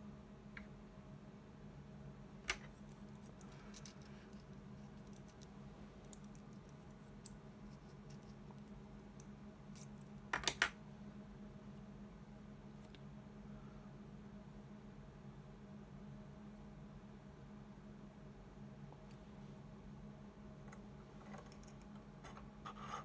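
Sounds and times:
steady low hum: 0.0s - 23.0s
small clicks and rustling: 2.5s - 10.7s, 20.6s - 22.5s.

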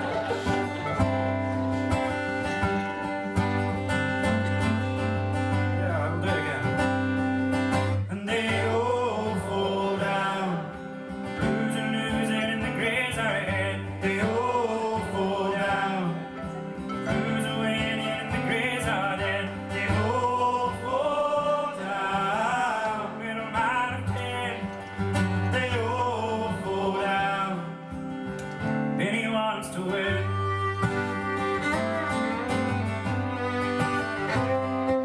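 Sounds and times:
acoustic guitar strumming: 0.0s - 35.0s
man singing: 5.7s - 7.2s, 8.0s - 24.8s, 25.4s - 28.0s, 28.9s - 32.8s.

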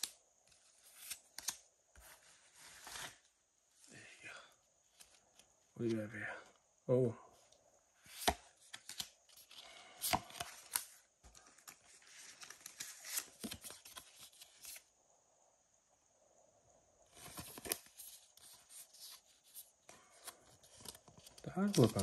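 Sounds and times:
paper cards flicked and slid: 0.0s - 2.2s, 8.1s - 14.8s
card sliding into plastic sleeve: 8.1s - 14.8s.

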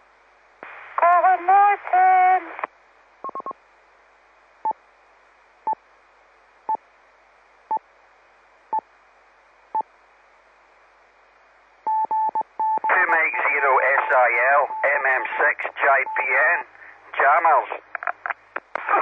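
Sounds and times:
radio static hiss: 0.6s - 3.6s, 12.8s - 19.0s
short beeps: 14.6s - 15.4s.

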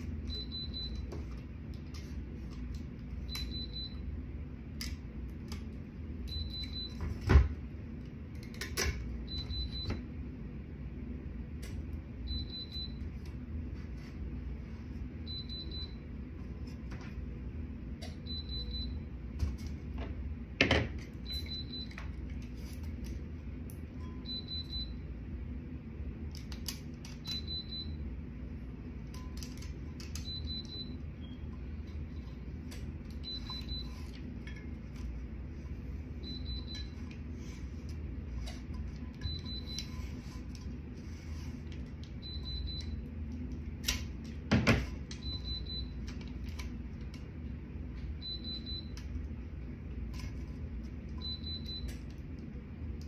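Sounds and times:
heat press beeping: 0.0s - 1.2s, 3.2s - 4.2s, 6.2s - 7.3s, 9.2s - 10.1s, 12.2s - 13.2s, 15.2s - 16.3s, 18.0s - 19.2s, 20.8s - 22.2s, 23.9s - 25.1s, 27.0s - 28.2s, 29.0s - 41.0s, 41.6s - 43.2s, 44.8s - 46.4s, 48.1s - 49.1s, 51.0s - 52.2s
steady low hum: 0.0s - 53.0s.

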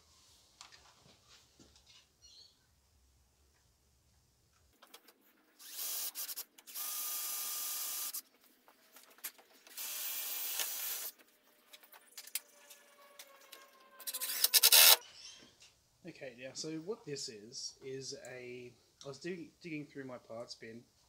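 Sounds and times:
small power tool running: 5.6s - 8.2s, 9.7s - 11.1s, 14.2s - 15.0s.

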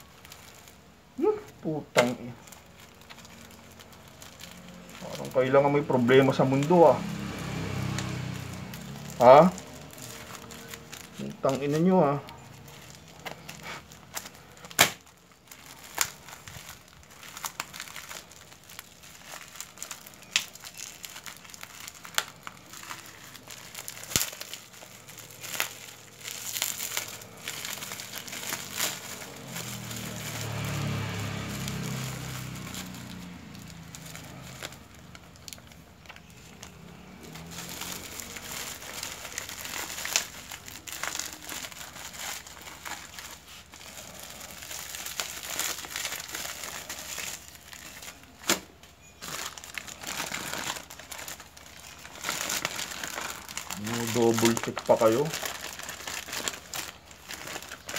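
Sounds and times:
plastic wrapping crinkling and tearing: 0.0s - 57.9s.

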